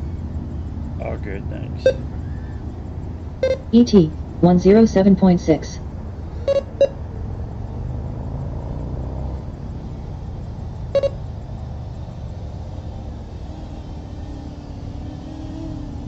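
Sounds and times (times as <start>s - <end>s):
low rumble: 0.0s - 15.0s
double electronic beep: 1.8s - 2.0s, 3.4s - 4.1s, 6.4s - 7.0s, 11.0s - 11.2s.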